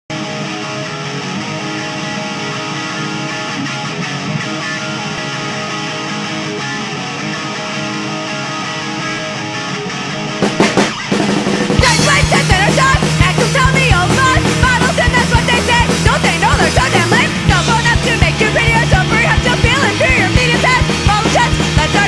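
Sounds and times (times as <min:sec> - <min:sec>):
guitar ringing chords: 0:00.1 - 0:22.0
punk band playing: 0:00.1 - 0:22.0
drum hits: 0:10.4 - 0:22.0.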